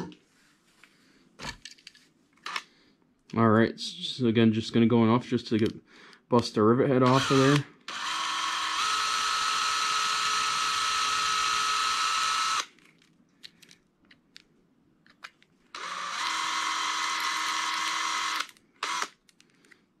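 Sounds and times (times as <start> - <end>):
cordless drill whining: 7.0 - 12.7, 15.7 - 19.2.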